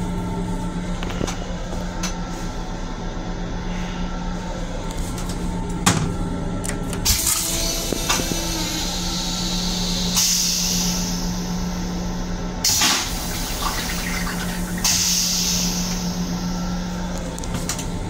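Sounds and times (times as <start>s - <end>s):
low hum: 0.0s - 18.0s
toilet flushing: 12.6s - 16.4s.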